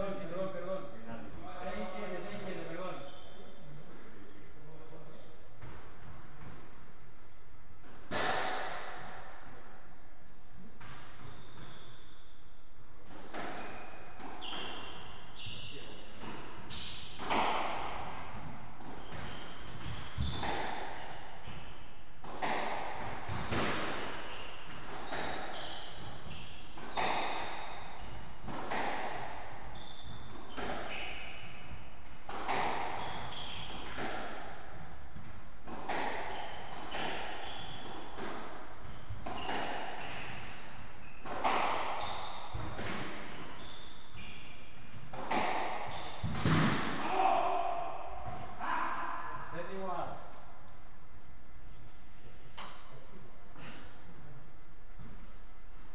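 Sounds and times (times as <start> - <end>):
squash ball hitting racket and walls: 5.2 - 51.8, 52.4 - 55.9
shoes squeaking on wooden floor: 11.1 - 12.5, 13.6 - 17.3, 23.2 - 28.5, 29.7 - 31.7, 32.5 - 34.0, 35.7 - 46.6.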